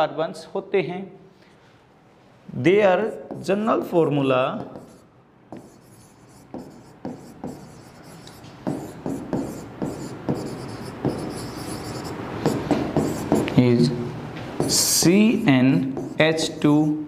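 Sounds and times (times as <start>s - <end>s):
pen tapping and scratching on screen: 4.6s - 13.6s, 14.6s - 15.0s, 15.8s - 16.4s.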